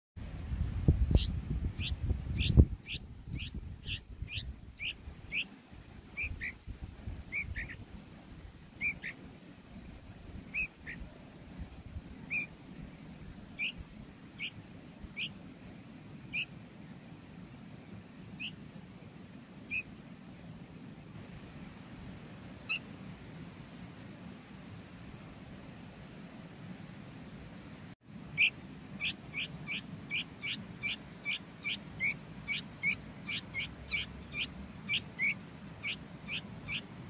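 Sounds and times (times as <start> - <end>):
fledgling begging chirps: 1.1 - 6.6, 7.3 - 7.8, 8.8 - 9.2, 10.5 - 11.1, 12.2 - 12.5, 13.6 - 13.8, 14.4 - 15.4, 16.3 - 16.5, 18.4 - 18.6, 19.7 - 19.9, 28.3 - 36.9.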